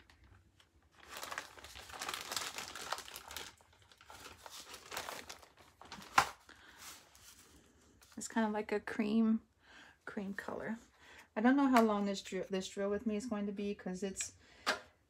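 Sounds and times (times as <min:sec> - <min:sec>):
plastic baggies crinkling: 0:00.0 - 0:07.6.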